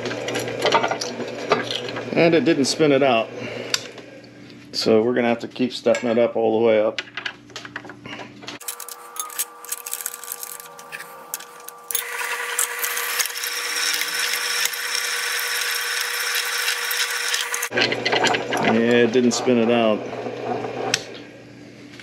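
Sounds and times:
drill press motor hum: 0:08.6 - 0:21.5
drill bit cutting metal: 0:10.9 - 0:20.8.

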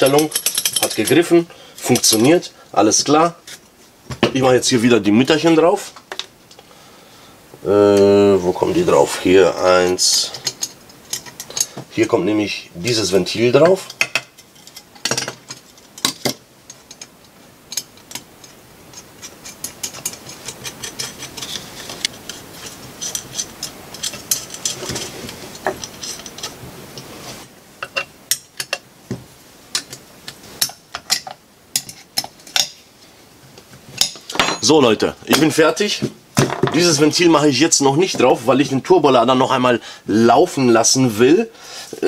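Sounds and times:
small metal clicks and clinks: 0:00.0 - 0:01.2.

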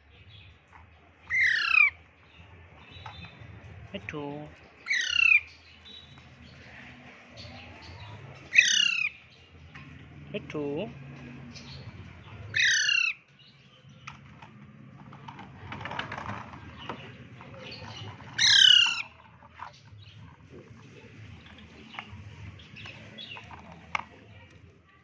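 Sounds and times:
parakeet squawking: 0:01.3 - 0:02.0, 0:04.8 - 0:05.6, 0:08.5 - 0:09.2, 0:12.5 - 0:13.3, 0:18.4 - 0:19.2.

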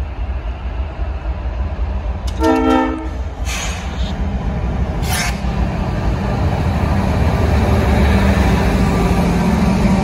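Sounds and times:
diesel locomotive rumble: 0:00.0 - 0:10.0
locomotive horn blast: 0:02.3 - 0:03.2.

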